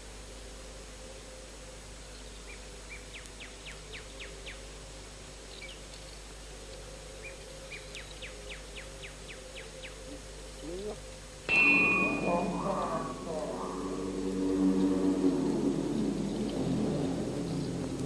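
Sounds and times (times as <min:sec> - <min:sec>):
tape hiss and hum: 0:00.0 - 0:18.0.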